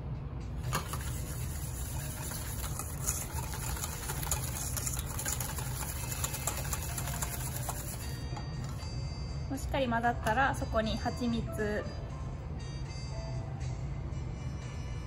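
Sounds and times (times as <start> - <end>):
whisk rattling in metal bowl: 0.6 - 8.8.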